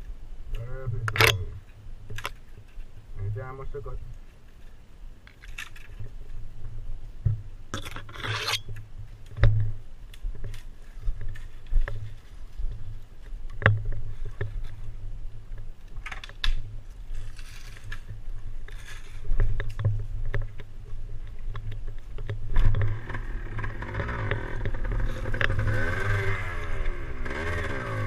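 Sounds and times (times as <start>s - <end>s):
dirt bike engine rumble: 5.9s - 28.0s
scraping: 7.8s - 8.8s, 16.9s - 26.4s.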